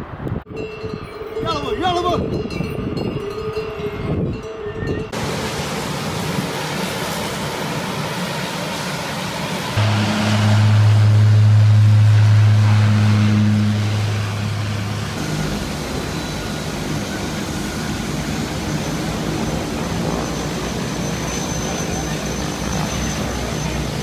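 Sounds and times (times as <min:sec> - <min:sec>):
engine rush with turbine whine: 0:05.1 - 0:24.0
propeller drone: 0:05.1 - 0:24.0.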